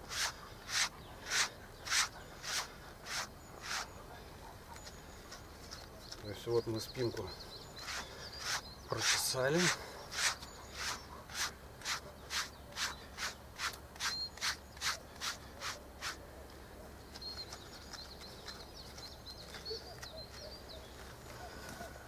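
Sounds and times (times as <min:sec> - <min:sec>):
wire brush strokes through dog fur: 0:00.0 - 0:03.9, 0:07.8 - 0:16.2.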